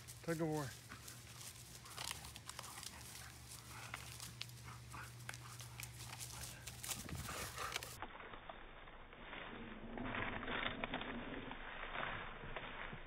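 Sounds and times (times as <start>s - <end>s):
steady low hum: 0.0s - 13.0s
faint dog noises: 0.2s - 8.0s.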